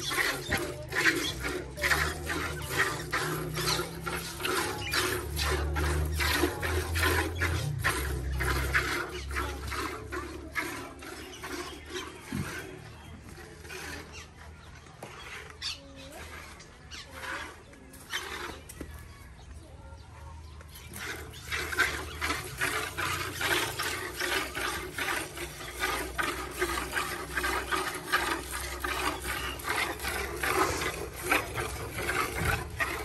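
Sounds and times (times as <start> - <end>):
milk squirting into a steel pail: 0.0 - 12.7.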